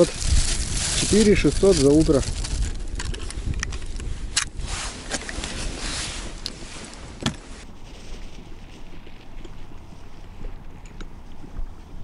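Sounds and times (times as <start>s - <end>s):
plastic bag rustling: 0.0s - 9.0s
wind noise: 0.0s - 12.0s.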